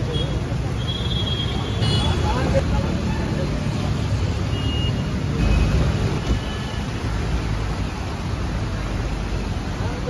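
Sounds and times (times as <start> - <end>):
road traffic: 0.0 - 10.0.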